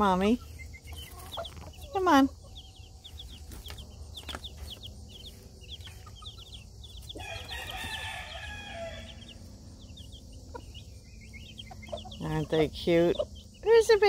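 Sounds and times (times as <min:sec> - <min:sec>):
baby chicks peeping: 0:00.0 - 0:14.0
adult chicken calling: 0:05.7 - 0:13.4.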